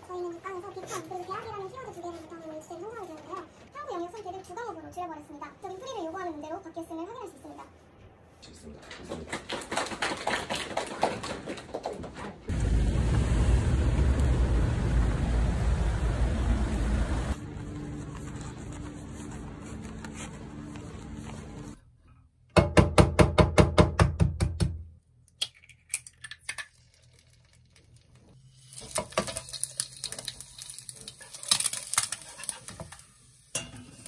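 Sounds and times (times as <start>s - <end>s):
low outdoor ambience: 12.5s - 22.2s
egg frying in oil: 25.5s - 34.0s.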